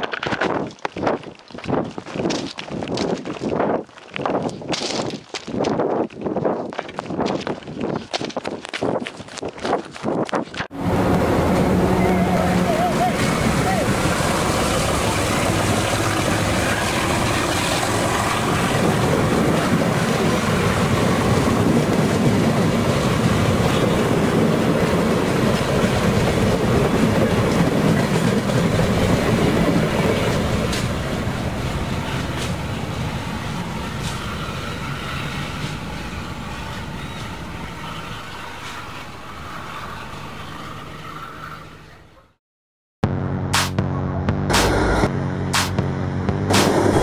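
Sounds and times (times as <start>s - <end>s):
passenger train passing: 10.7s - 42.3s, 46.3s - 47.0s.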